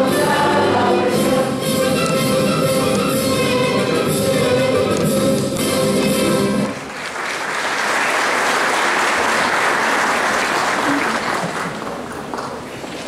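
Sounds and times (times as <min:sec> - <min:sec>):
audience applauding: 0:06.6 - 0:13.0.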